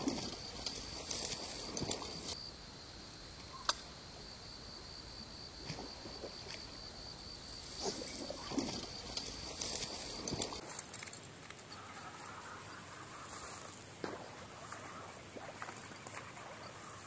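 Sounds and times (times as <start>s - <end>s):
insect trill: 0.0s - 17.0s
faint rustles: 9.2s - 17.0s.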